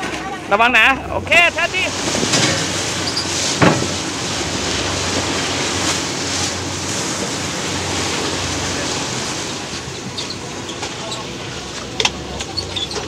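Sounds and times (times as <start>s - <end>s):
churning wake water: 0.0s - 13.0s
low engine hum: 0.0s - 13.0s.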